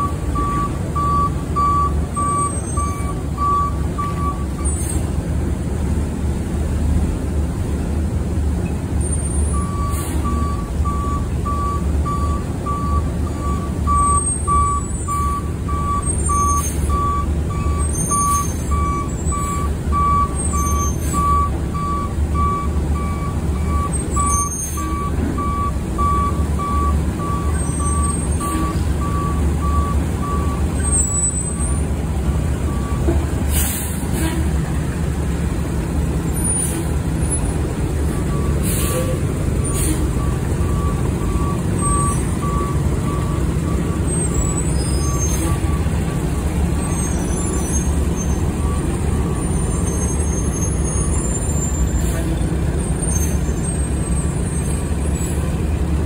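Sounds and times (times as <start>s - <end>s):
reversing alarm beeping: 0.0s - 4.8s, 9.5s - 31.8s, 32.6s - 33.1s, 38.2s - 51.6s
diesel engine running: 0.0s - 56.0s
air brake hisses: 9.9s - 10.4s, 33.5s - 34.6s, 36.5s - 37.0s, 38.6s - 40.2s.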